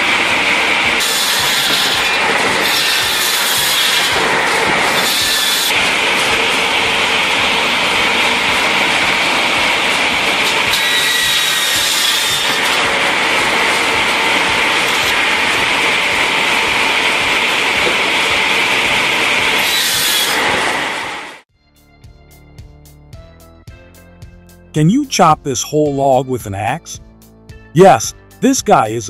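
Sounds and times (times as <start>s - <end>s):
circular saws cutting logs: 0.0s - 21.4s
high saw whine: 0.0s - 21.4s.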